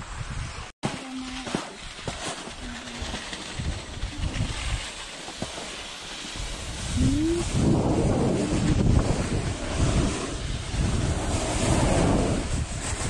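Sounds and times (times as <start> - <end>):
skis sliding over snow: 0.2 - 13.0
wind buffeting microphone: 1.8 - 5.0, 6.3 - 13.0.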